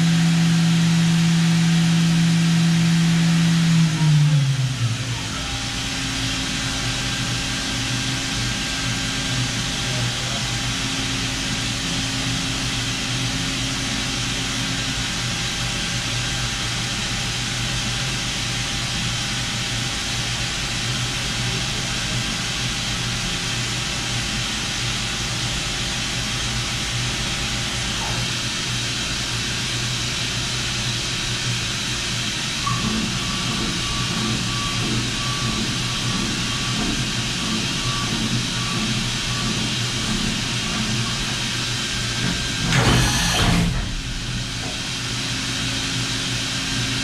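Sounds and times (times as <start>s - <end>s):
machine spindle humming: 32.6s - 47.0s.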